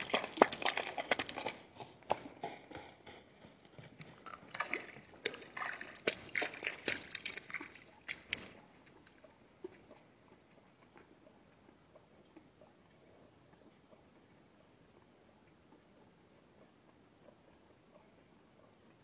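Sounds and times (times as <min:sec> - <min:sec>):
hooves splashing through water: 0:00.0 - 0:11.2.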